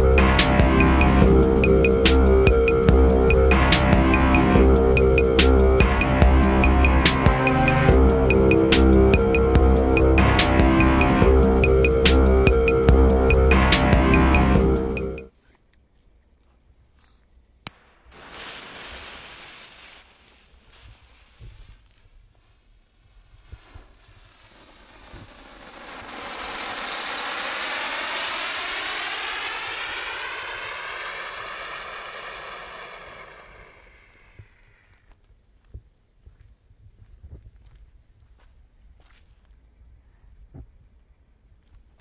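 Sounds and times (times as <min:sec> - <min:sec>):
firework fountain hissing: 0:17.7 - 0:35.0.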